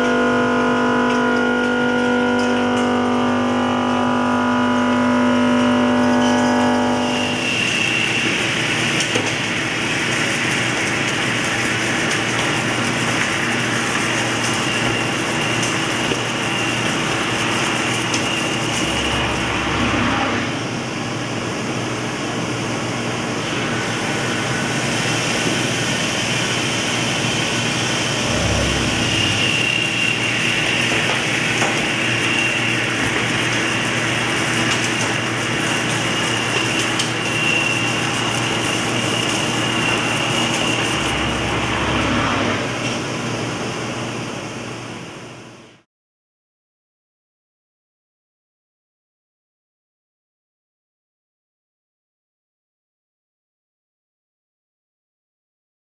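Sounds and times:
high machine whine: 0.0 - 45.3
machine cutting steel hissing: 6.2 - 20.7, 23.6 - 43.1.

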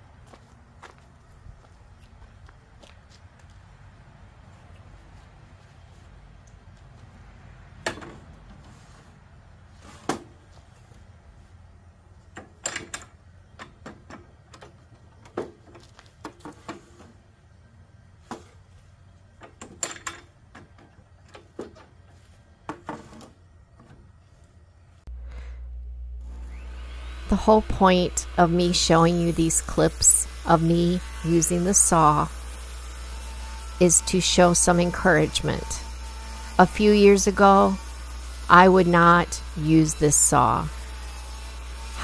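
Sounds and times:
low steady hum: 23.5 - 42.0.

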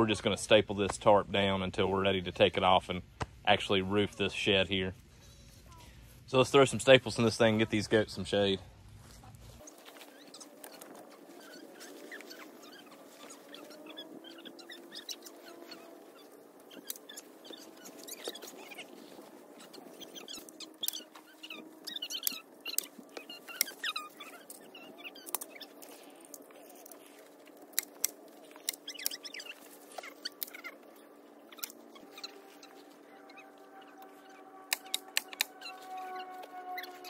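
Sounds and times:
faint high chirping: 9.6 - 37.0.

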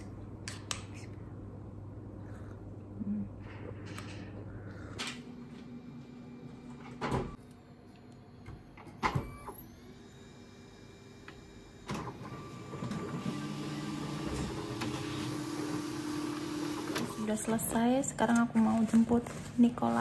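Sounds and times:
photocopier running hum: 1.2 - 20.0
photocopier rising whine: 5.3 - 17.4.

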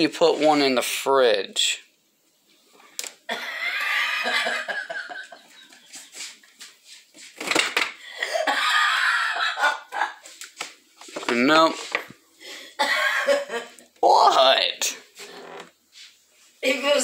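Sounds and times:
person laughing: 3.3 - 5.6, 8.1 - 10.4, 12.8 - 13.9.

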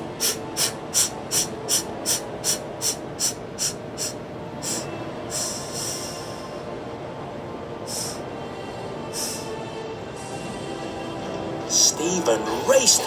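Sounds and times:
steam hissing: 0.0 - 6.6, 7.8 - 8.3, 9.1 - 9.6
steam locomotive chuffing: 0.0 - 6.7, 7.8 - 8.3, 9.1 - 9.6.

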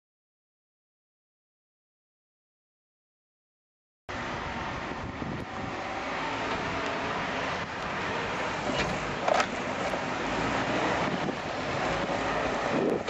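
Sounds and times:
diesel engine running: 4.1 - 13.0
wind on the microphone: 4.4 - 7.0, 10.7 - 13.0.

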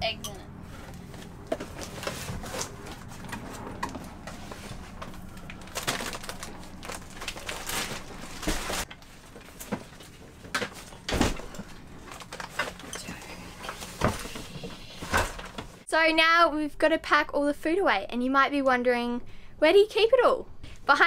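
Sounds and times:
bags rustling: 0.8 - 15.8.

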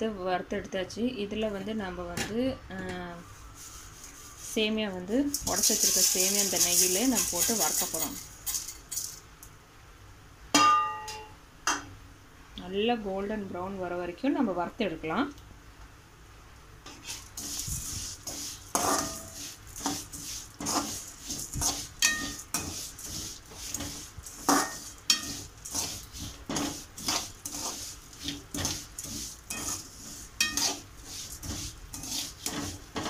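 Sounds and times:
ladle scraping metal pan: 5.3 - 9.1, 16.9 - 33.0.

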